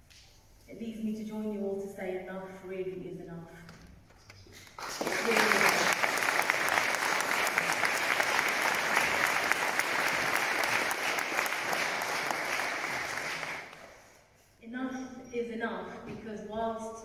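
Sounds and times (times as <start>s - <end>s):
crowd applauding: 4.7s - 14.1s.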